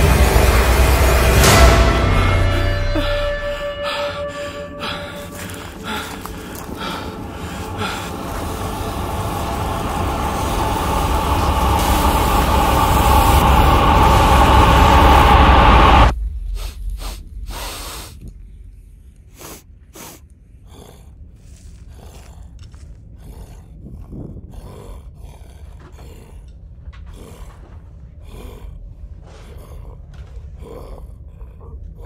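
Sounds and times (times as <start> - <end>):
rumbling roar: 0.0 - 19.1, 20.6 - 32.0
breathy sounds: 0.0 - 32.0.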